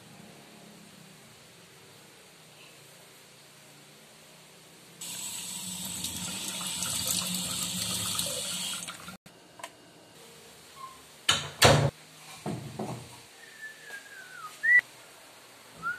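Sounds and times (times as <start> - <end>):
faucet water splashing: 5.0 - 9.2.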